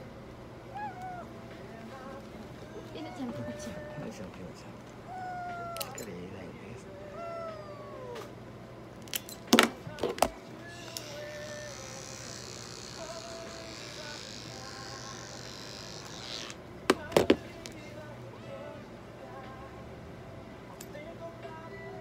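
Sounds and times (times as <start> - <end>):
electric pet clipper buzzing: 10.7 - 16.6.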